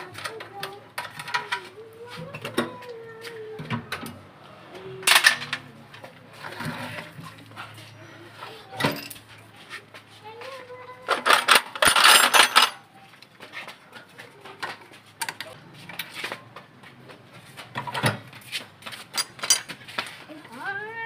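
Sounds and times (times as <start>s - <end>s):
metal parts clinking and clattering: 5.0s - 5.6s, 8.8s - 9.3s, 11.1s - 12.9s, 19.1s - 19.8s.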